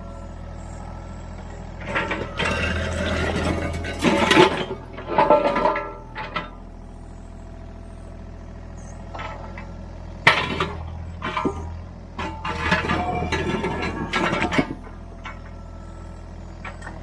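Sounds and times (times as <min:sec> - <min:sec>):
excavator engine running: 0:00.0 - 0:17.0
concrete scraping and clattering: 0:01.8 - 0:06.5, 0:10.3 - 0:15.6.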